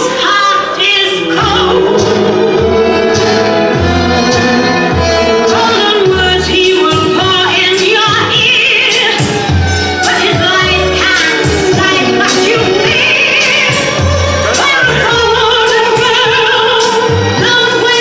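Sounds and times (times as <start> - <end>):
person singing: 4.8 - 18.0.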